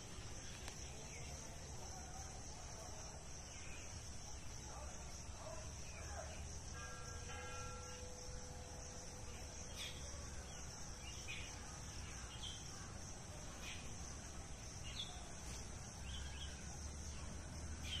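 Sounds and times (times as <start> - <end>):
insects droning: 0.0 - 18.0
small birds chirping: 9.4 - 18.0.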